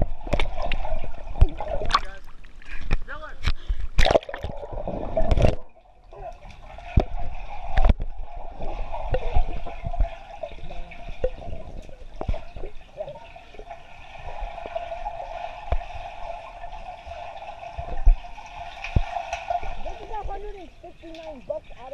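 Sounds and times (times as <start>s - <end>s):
underwater gurgling: 0.0s - 21.9s
camera splashing into water: 1.4s - 2.3s, 3.9s - 5.7s.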